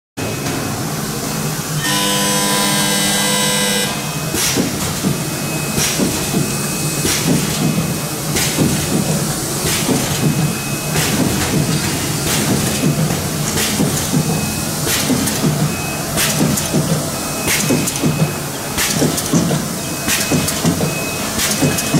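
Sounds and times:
steady machine hum: 0.2s - 21.9s
steady multi-pitch tone: 1.8s - 4.4s
pneumatic cylinders hissing and clacking: 4.2s - 21.9s.

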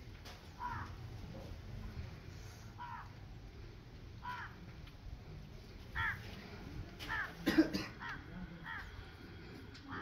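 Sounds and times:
crows cawing: 0.5s - 1.1s, 2.7s - 3.3s, 4.2s - 4.8s, 5.9s - 9.2s, 9.8s - 10.0s.

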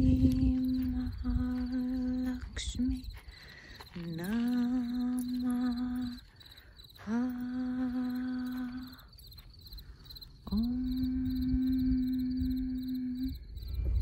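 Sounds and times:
person humming long notes: 0.0s - 2.5s, 4.1s - 6.2s, 7.0s - 9.1s, 10.5s - 14.0s
crickets chirping: 0.0s - 14.0s.

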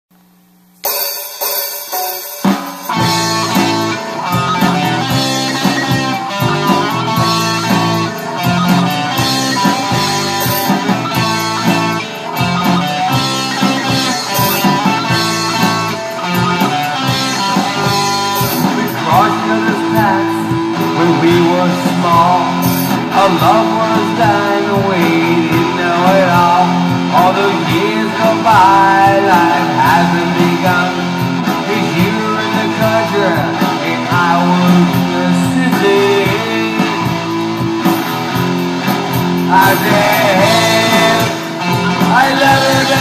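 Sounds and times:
instrumental rock music: 0.7s - 43.0s.

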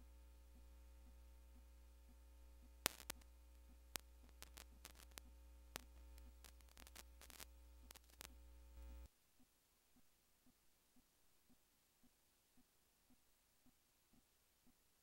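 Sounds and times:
low hum: 0.0s - 9.1s.

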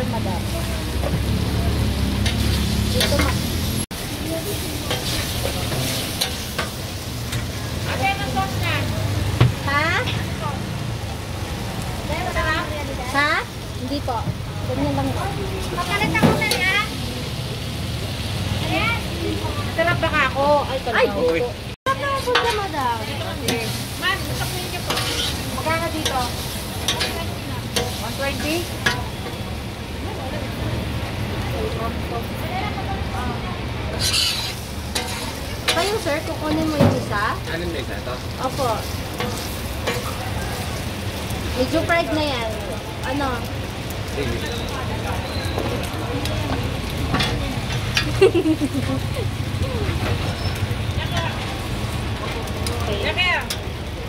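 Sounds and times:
tofu sizzling on a griddle: 0.0s - 54.0s
metal spatulas scraping and clinking: 2.2s - 3.4s, 4.9s - 7.5s, 22.1s - 22.8s, 23.4s - 29.4s, 33.9s - 36.8s.

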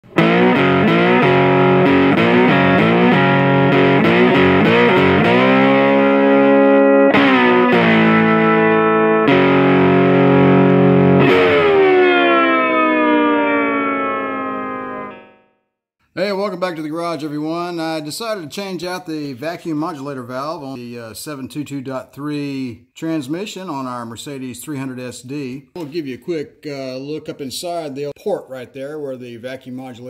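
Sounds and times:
distorted electric guitar chords: 0.0s - 15.5s.

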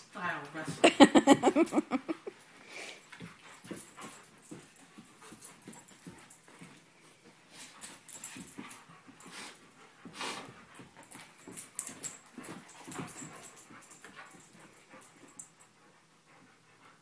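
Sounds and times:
dogs huffing and breathing: 1.0s - 17.0s
dogs scuffling: 3.0s - 15.5s.

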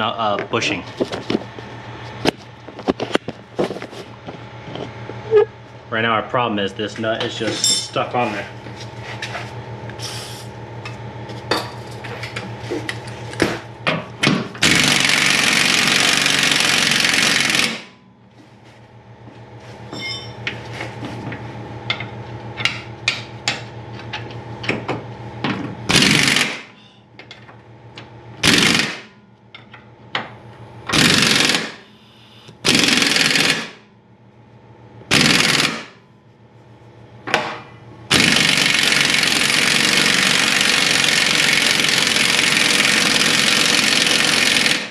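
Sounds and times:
steady hum: 0.0s - 43.1s
impact wrench hammering: 13.4s - 17.9s, 25.5s - 26.8s, 28.4s - 29.7s, 30.9s - 31.9s, 32.7s - 33.8s, 35.1s - 36.0s, 37.3s - 44.9s.

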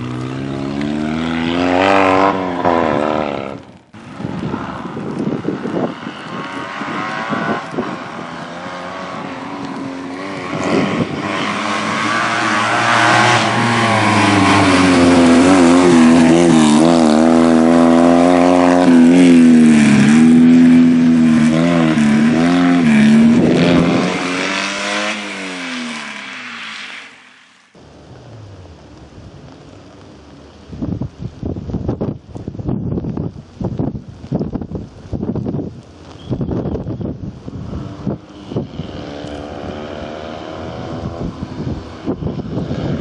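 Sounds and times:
rally car engine revving past: 0.0s - 3.6s, 6.4s - 27.1s, 37.7s - 43.0s.

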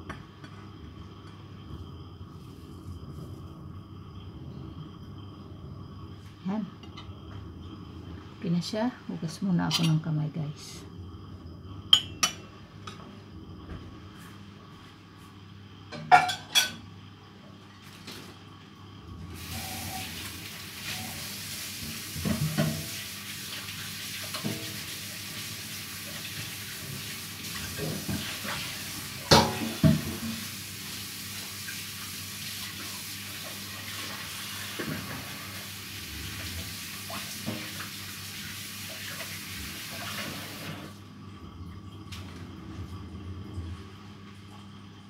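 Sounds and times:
tap water running: 19.2s - 45.0s.

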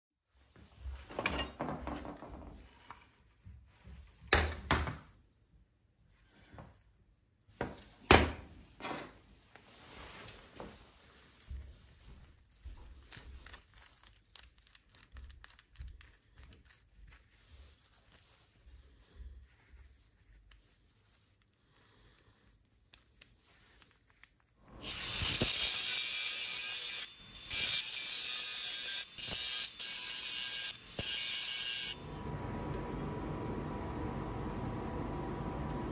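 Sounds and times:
angle grinder cutting steel: 24.7s - 32.2s.

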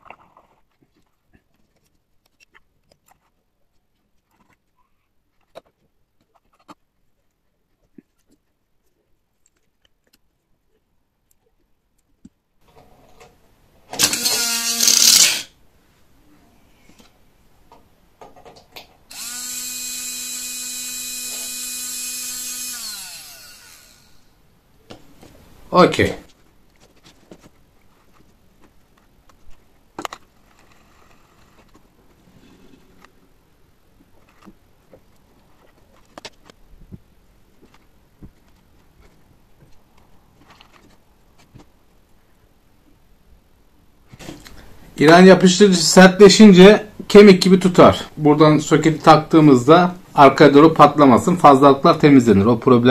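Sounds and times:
hands handling wires and plastic: 0.0s - 13.4s, 24.9s - 32.2s, 33.9s - 42.2s
small electric motor whine: 14.0s - 15.5s, 19.1s - 24.4s.

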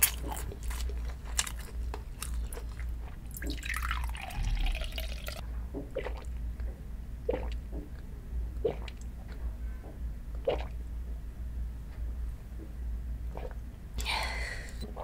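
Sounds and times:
person gulping: 2.4s - 6.3s, 7.3s - 8.0s, 8.6s - 9.1s, 10.4s - 10.8s, 13.3s - 13.6s
liquid pouring from glass bottle: 3.3s - 5.4s.

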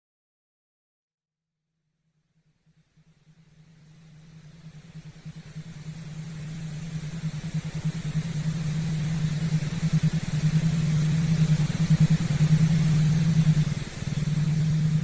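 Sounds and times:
low fluttering hum: 3.1s - 15.0s
hiss: 3.8s - 15.0s.

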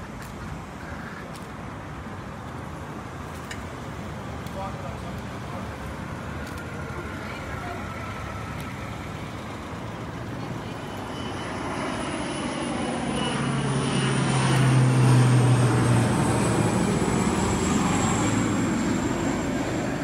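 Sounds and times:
passing engine hum: 0.0s - 20.0s.

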